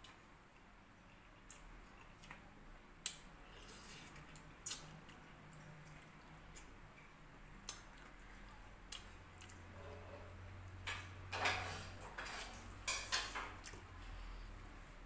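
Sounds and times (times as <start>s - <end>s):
chewing meat: 0.0s - 10.5s.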